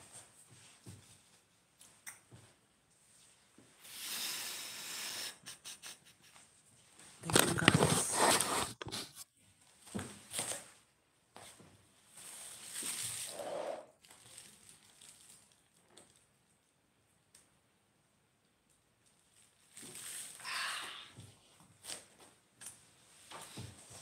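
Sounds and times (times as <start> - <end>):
rustling handling noise: 6.8 - 10.8.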